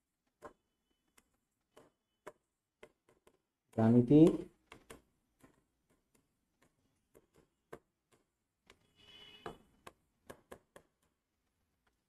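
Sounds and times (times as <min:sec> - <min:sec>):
chalk tapping on chalkboard: 0:01.7 - 0:11.2.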